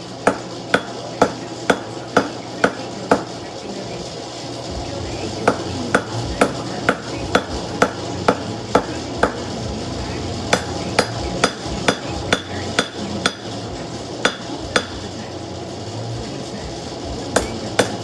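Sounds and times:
hammer ringing on hot steel: 0:00.0 - 0:15.4, 0:17.4 - 0:18.0
steady background noise: 0:00.0 - 0:18.0.

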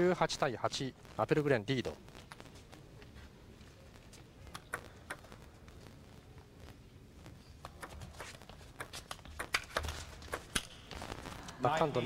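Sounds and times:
faint hall hum: 0:00.0 - 0:12.0
table tennis ball clicking: 0:04.5 - 0:05.4, 0:07.6 - 0:10.9.

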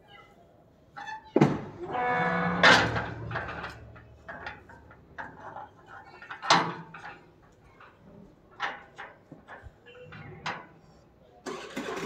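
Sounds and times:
metal gate scraping squeal: 0:01.8 - 0:03.8
metal gate clanging: 0:01.8 - 0:07.2
metal gate rattling: 0:01.8 - 0:07.2.

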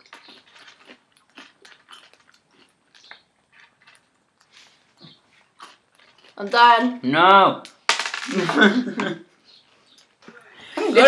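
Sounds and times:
chewing and crunching candies: 0:00.0 - 0:06.8.

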